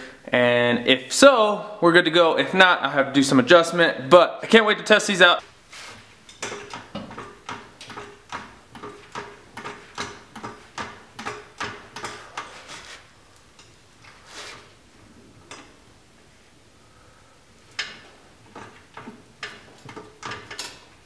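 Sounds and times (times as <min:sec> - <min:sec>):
floor jack clicking: 0:06.3 - 0:12.9, 0:17.7 - 0:20.9.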